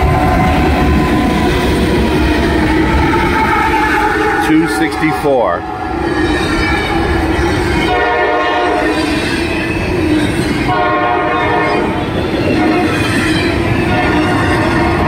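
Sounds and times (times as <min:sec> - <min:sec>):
locomotive horn blasts: 0:00.0 - 0:01.5, 0:07.8 - 0:09.0, 0:10.7 - 0:12.0, 0:13.9 - 0:15.0
freight train rumbling on rails: 0:00.0 - 0:15.0.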